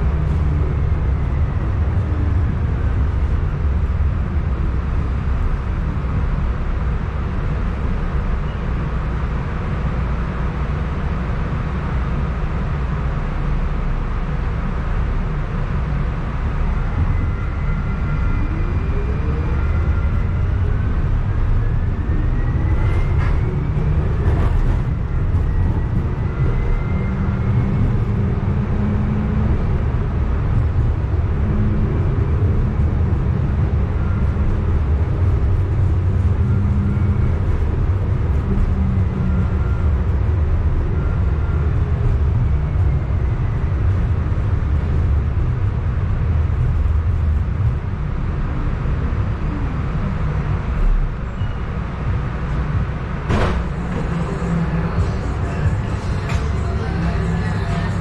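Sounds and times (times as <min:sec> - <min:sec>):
streetcar rumbling on rails: 0:00.0 - 0:58.0
sharp clunk: 0:53.3 - 0:54.0.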